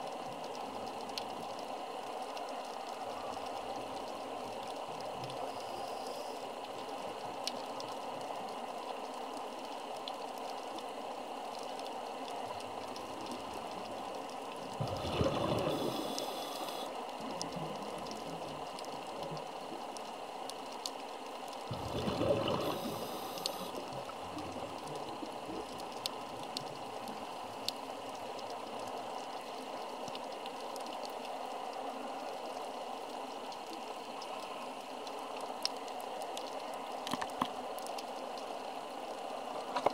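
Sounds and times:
faint underwater clicks: 0.0 - 39.9
scuba exhaust bubbles: 14.7 - 16.9, 21.7 - 25.4.

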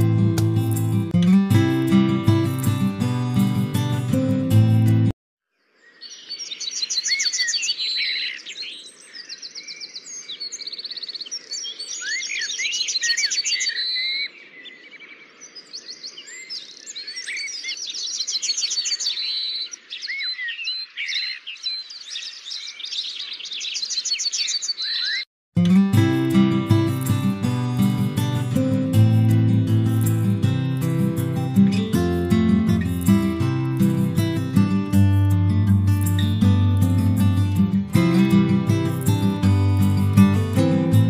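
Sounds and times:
acoustic guitar music: 0.0 - 5.2, 25.6 - 41.0
songbirds singing: 5.5 - 25.3.

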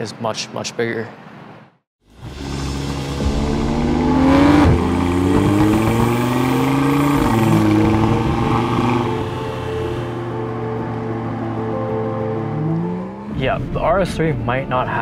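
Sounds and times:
car engine accelerating hard: 2.1 - 13.4.

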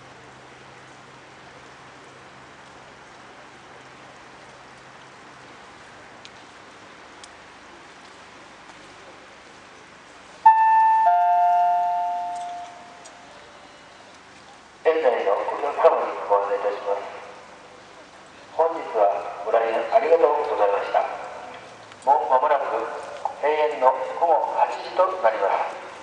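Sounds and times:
faint outdoor hiss: 0.0 - 26.0
public-address chime: 10.5 - 13.9.

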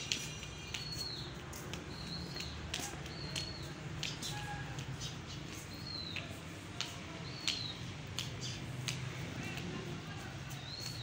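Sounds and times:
squeaky shoes squeaking: 0.0 - 6.2
light footfall clicks: 0.0 - 9.8.

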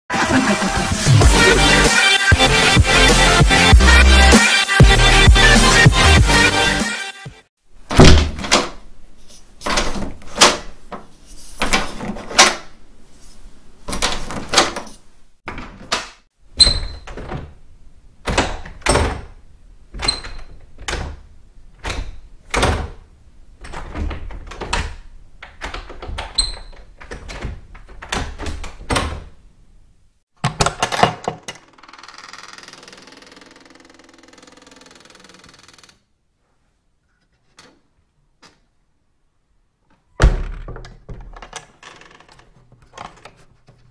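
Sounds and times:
doorknob clicks and knocks: 21.8 - 29.4, 40.2 - 43.2.

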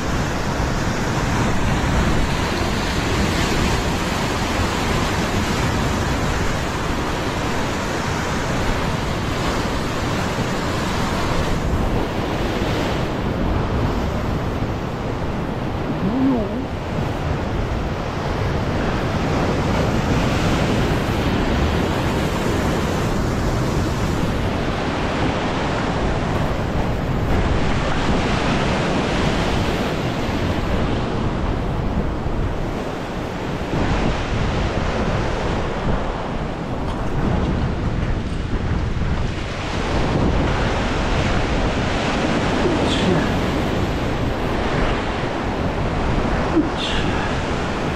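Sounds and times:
wind on microphone: 0.0 - 47.9.

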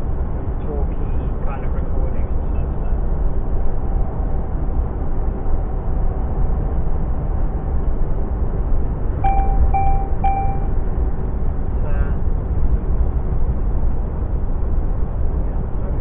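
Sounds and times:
lorry engine and road drone: 0.0 - 16.0
short electronic beeps: 9.2 - 10.7.

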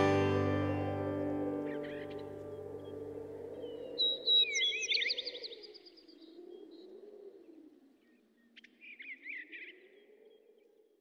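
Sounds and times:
birds chirping: 0.0 - 7.0.

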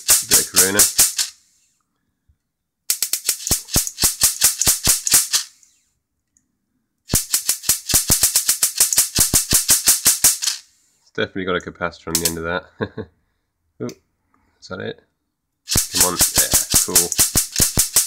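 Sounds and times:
high-voltage arcs snapping: 0.0 - 1.4, 2.9 - 5.6, 7.1 - 10.6, 12.2 - 12.4, 15.7 - 18.0.

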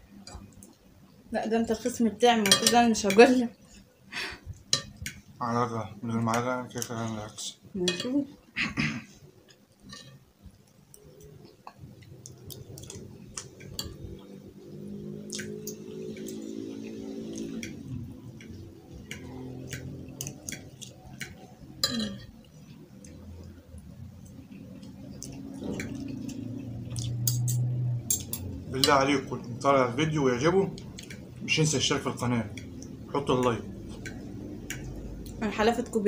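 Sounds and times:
forks scraping dinner plates: 9.5 - 10.2
cutlery clinks: 21.8 - 22.3.

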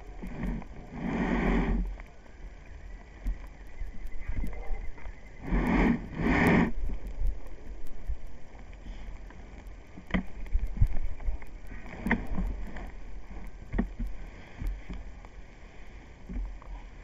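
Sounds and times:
microphone handling rumble: 3.2 - 15.2.

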